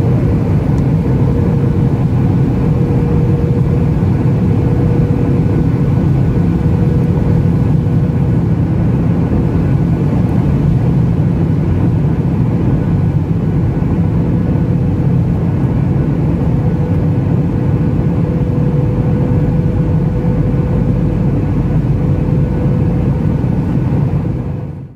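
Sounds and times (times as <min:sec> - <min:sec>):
rushing airflow: 0:00.0 - 0:18.2
airplane cabin engine noise: 0:00.0 - 0:24.9
thin steady hum: 0:00.0 - 0:24.9.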